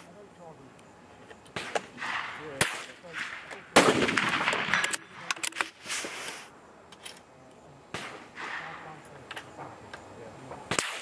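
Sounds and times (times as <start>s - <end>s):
rifle shot: 1.6s - 5.3s, 7.9s - 9.0s, 10.7s - 11.0s.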